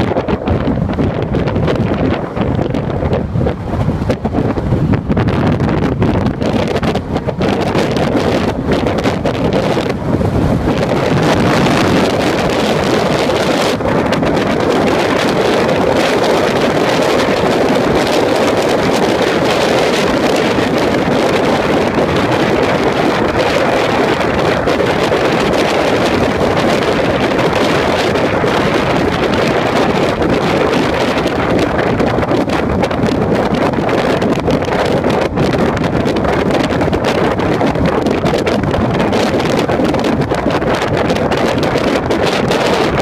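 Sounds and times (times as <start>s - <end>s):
car road noise at speed: 0.0s - 43.0s
wind rushing on microphone: 0.0s - 43.0s.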